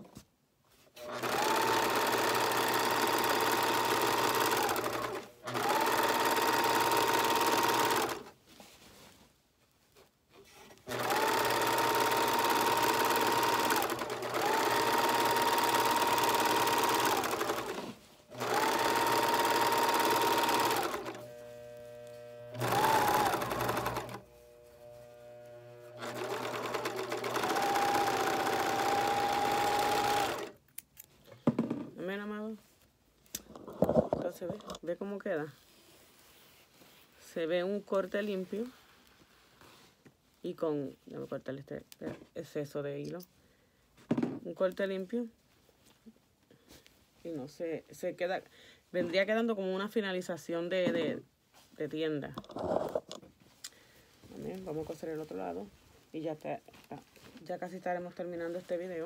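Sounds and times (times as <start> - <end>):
overlock machine stitching: 1.0 - 8.3, 10.8 - 30.6.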